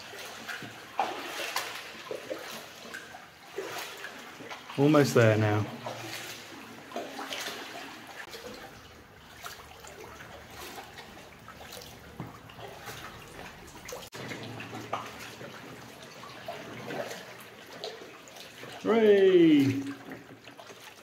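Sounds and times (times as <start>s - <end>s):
kayak paddle strokes in water: 0.0s - 21.0s
water drips and splashes: 0.0s - 21.0s.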